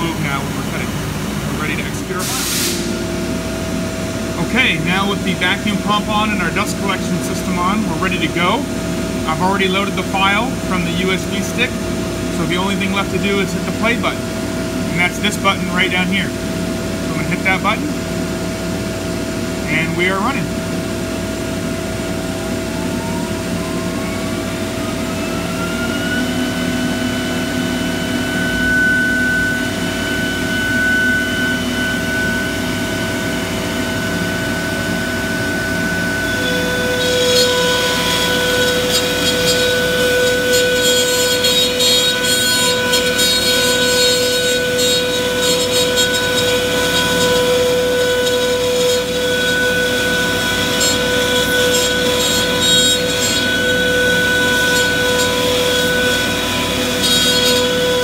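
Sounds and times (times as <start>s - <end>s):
router spindle whine: 0.0s - 2.3s, 3.0s - 58.0s
vacuum pump and dust collector hum: 0.0s - 58.0s
router bit cutting plywood: 22.4s - 58.0s.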